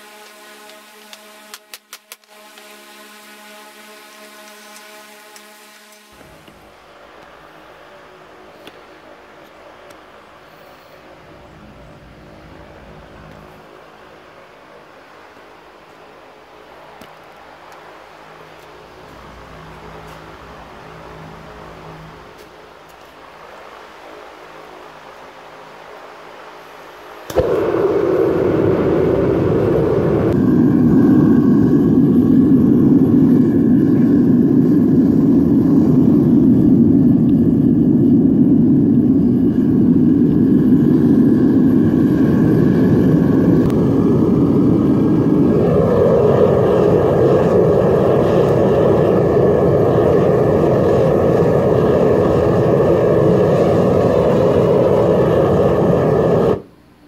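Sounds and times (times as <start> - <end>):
propane burner rushing: 0.0 - 7.9, 26.6 - 56.7.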